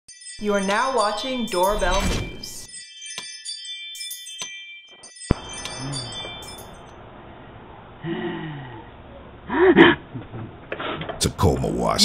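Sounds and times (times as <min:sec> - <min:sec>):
chime-like ringing tones: 0:00.1 - 0:07.0.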